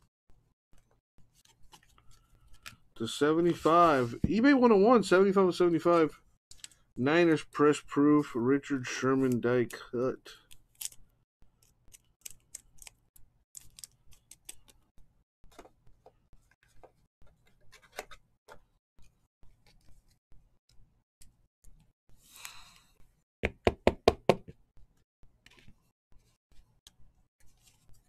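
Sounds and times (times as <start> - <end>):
cards rustling: 11.6 - 14.9.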